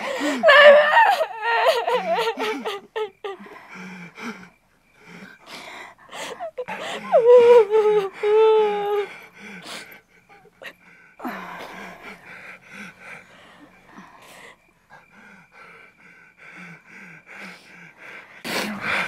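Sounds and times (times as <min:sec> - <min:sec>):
woman sobbing: 0:00.0 - 0:04.5, 0:06.0 - 0:13.7
catching breaths and gasps: 0:02.2 - 0:07.2, 0:08.0 - 0:19.0.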